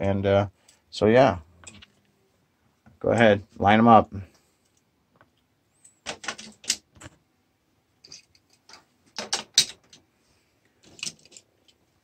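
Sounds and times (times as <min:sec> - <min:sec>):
toy cars clattering on plastic track: 0:08.0 - 0:10.0, 0:10.8 - 0:11.4.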